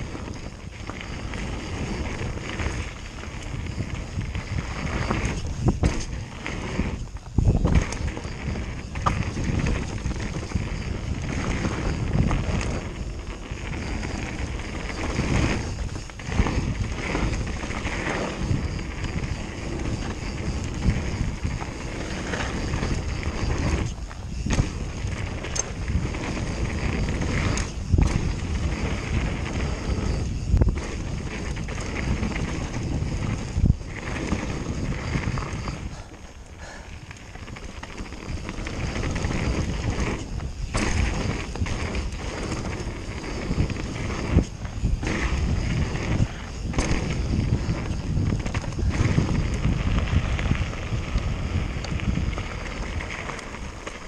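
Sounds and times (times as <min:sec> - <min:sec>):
wind buffeting microphone: 0:00.0 - 0:54.0
bike knocking over bumps: 0:04.9 - 0:06.6, 0:15.1 - 0:29.3.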